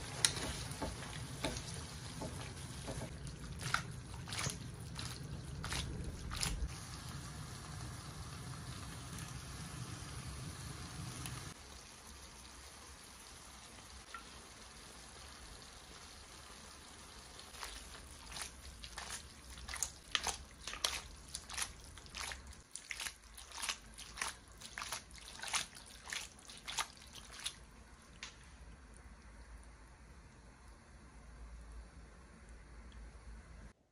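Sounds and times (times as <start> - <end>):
pasta sloshing in a tossed pan: 0.0 - 7.1, 15.9 - 28.4.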